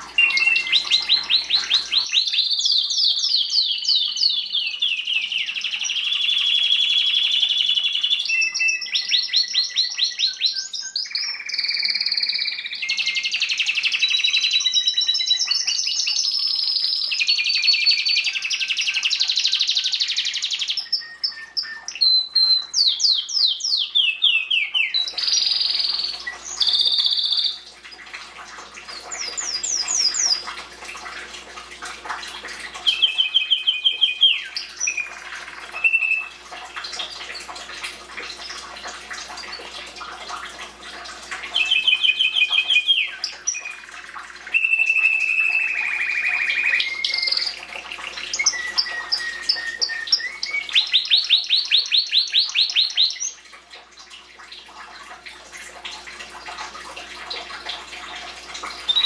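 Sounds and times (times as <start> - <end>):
canary singing trills: 0.0 - 27.7, 32.8 - 36.4, 41.5 - 43.9, 44.5 - 53.4.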